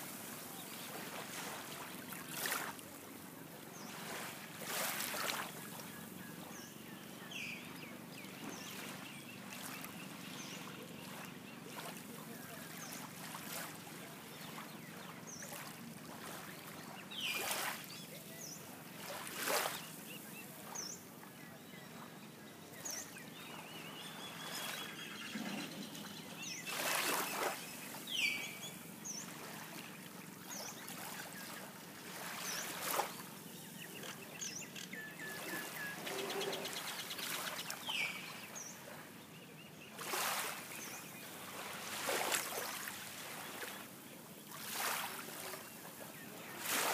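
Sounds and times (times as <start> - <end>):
sea lapping at shore: 0.0 - 46.9
birds calling: 14.5 - 43.9.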